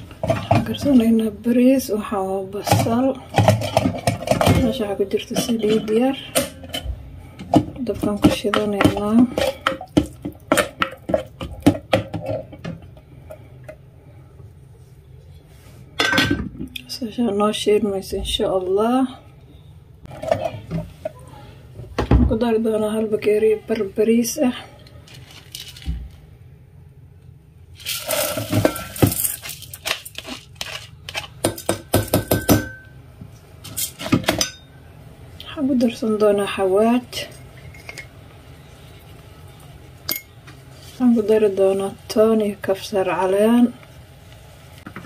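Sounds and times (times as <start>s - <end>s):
rice pouring into a pot: 27.8s - 29.7s.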